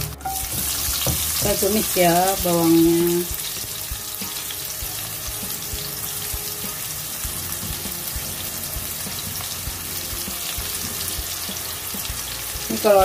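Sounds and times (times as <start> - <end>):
shallots sizzling in hot oil: 0.0 - 13.0.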